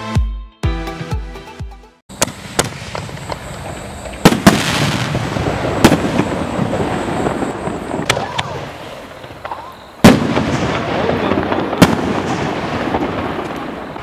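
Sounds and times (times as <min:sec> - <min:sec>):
firework shells bursting: 0:02.1 - 0:14.0.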